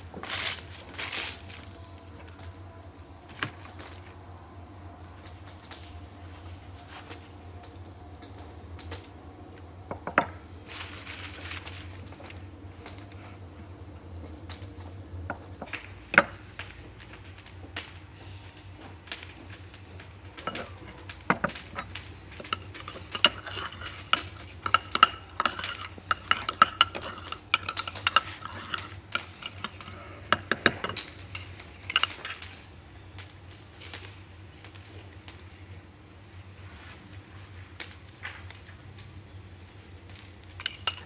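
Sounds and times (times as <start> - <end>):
metal spoon clinking in clay bowl: 21.7 - 32.4, 40.6 - 41.0.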